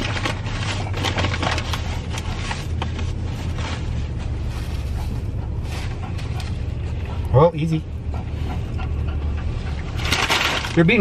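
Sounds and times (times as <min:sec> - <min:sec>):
paper and wrapper rustling: 0:00.0 - 0:05.0, 0:10.0 - 0:11.0
idling car hum: 0:00.0 - 0:11.0.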